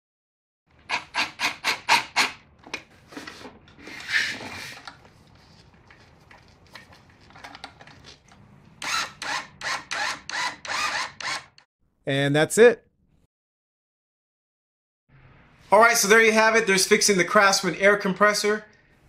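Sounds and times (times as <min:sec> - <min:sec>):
cordless drill driving screws: 0:08.8 - 0:11.6.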